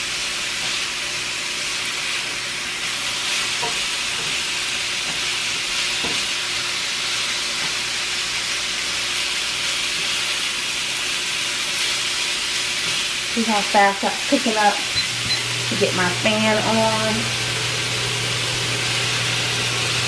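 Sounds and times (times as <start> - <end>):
steak sizzling in a skillet: 0.0 - 20.0
spatula knocking against pan: 3.6 - 4.4.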